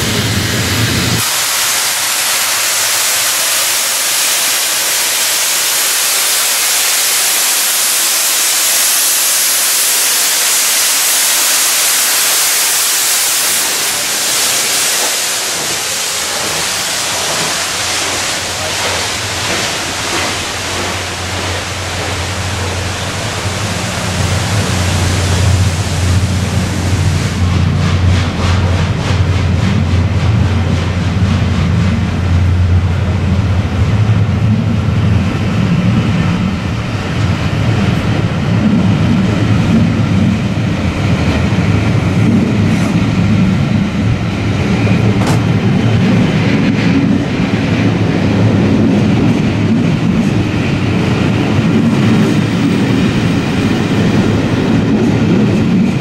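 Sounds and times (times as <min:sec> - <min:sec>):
steam locomotive blowing off steam: 0:00.0 - 0:56.0
low rumble: 0:20.2 - 0:49.5.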